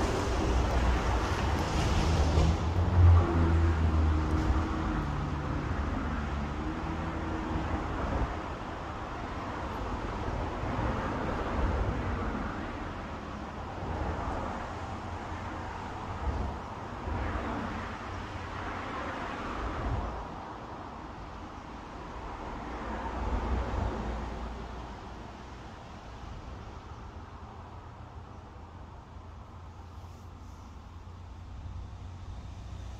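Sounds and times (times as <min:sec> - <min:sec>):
road traffic hiss and rumble: 0:00.0 - 0:32.9.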